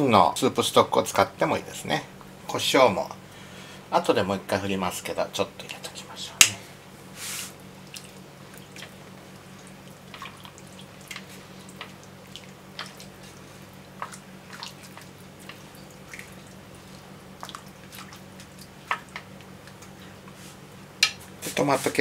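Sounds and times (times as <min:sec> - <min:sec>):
low steady hum: 0:00.0 - 0:22.0
chopsticks stirring in broth: 0:07.2 - 0:22.0.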